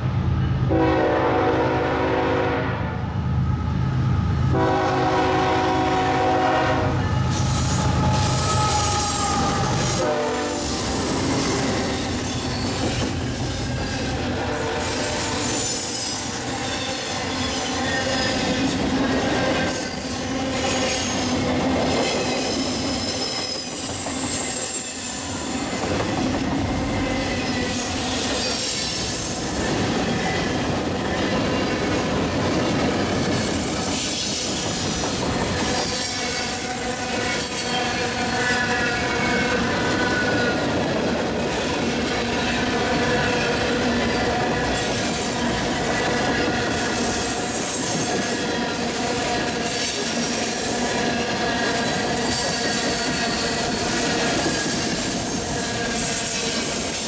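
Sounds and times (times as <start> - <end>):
freight train cars rolling past: 0.0 - 57.0
high-pitched wheel squeal: 7.2 - 10.0, 22.4 - 31.9
steel wheels on rails: 7.2 - 57.0.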